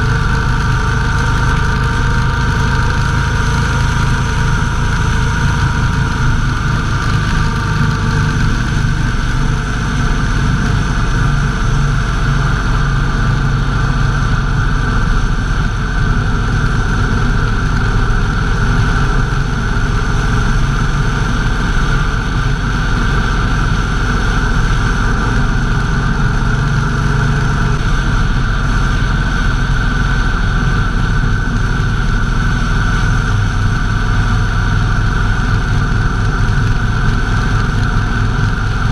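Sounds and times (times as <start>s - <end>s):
motorcycle engine cruising: 0.0s - 38.9s
road noise: 0.0s - 38.9s.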